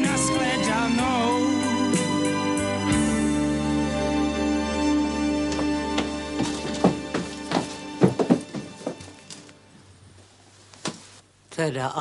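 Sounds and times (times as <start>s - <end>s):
film music: 0.0s - 10.0s
sharp knocks and thuds: 5.6s - 9.2s.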